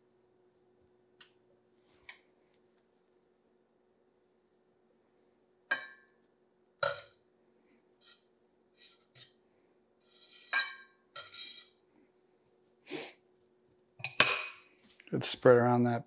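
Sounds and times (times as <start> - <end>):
utensil scraping: 8.0 - 9.4, 10.0 - 10.6, 11.2 - 11.8.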